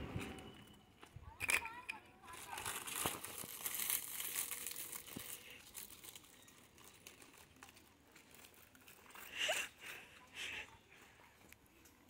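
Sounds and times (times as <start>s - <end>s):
plastic packet crinkling: 1.4s - 10.0s.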